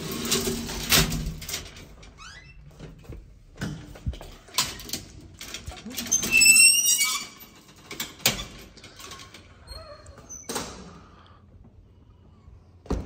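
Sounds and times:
metal gate squealing and rattling: 5.9 - 8.6.

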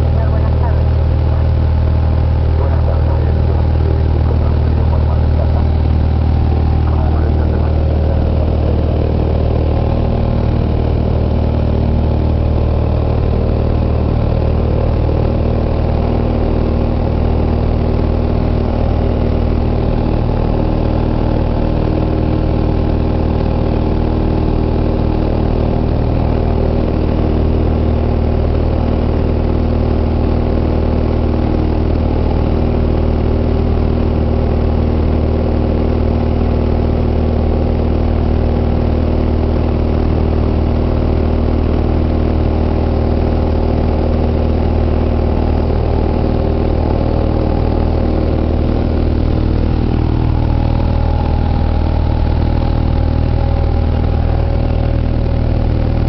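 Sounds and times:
light aircraft engine droning: 0.0 - 56.0.

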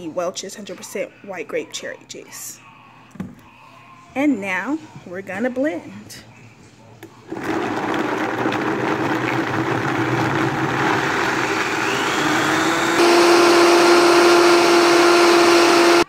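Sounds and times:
blender motor running: 7.3 - 16.0.

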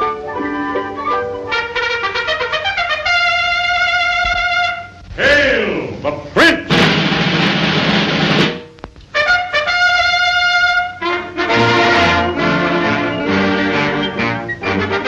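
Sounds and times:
trumpet fanfare: 1.5 - 5.0, 6.7 - 15.0
band playing steady beat: 6.4 - 15.0.

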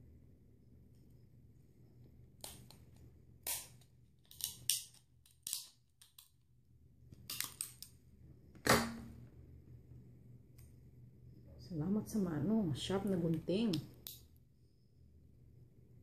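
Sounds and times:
scissors cutting crab shell: 3.4 - 6.3.

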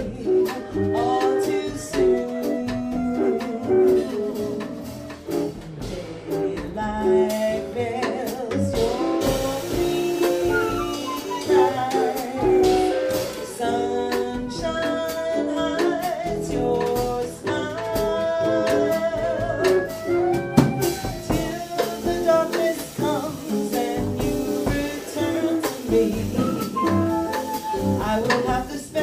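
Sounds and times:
jazz band playing: 0.0 - 29.0
cymbals: 8.8 - 14.2, 19.9 - 29.0.

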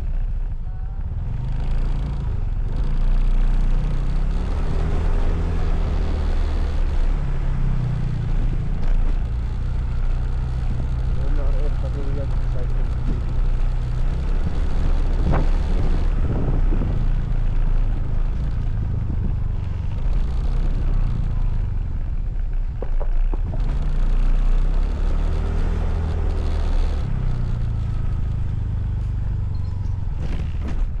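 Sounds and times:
motorcycle engine running: 0.0 - 31.0
wind noise on microphone: 14.0 - 20.1, 29.5 - 31.0.

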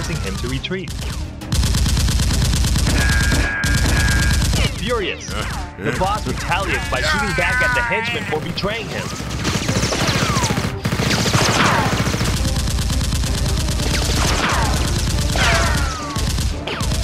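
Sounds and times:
rapid automatic gunfire: 0.9 - 4.8, 9.1 - 17.0.

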